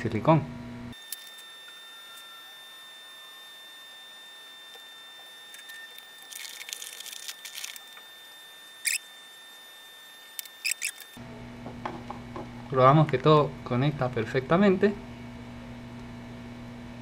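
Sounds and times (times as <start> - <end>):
faint high whine: 0.9 - 11.2.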